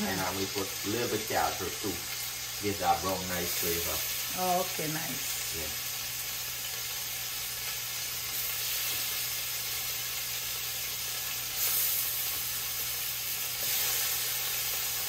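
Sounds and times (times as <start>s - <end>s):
meat sizzling in hot oil: 0.0s - 15.0s.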